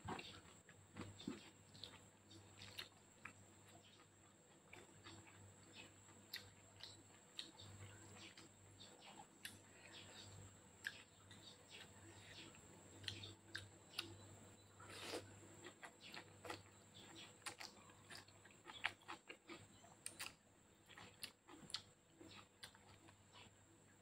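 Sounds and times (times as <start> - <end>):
chewing and slurping spaghetti: 14.8 - 23.6.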